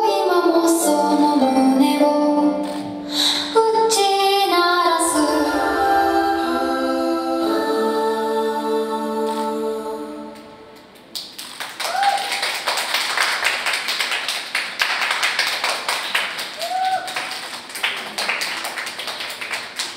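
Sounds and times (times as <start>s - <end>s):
sung vocal music: 0.0s - 10.8s
audience applauding: 11.1s - 19.9s
short cheers: 11.8s - 12.4s, 16.5s - 17.3s.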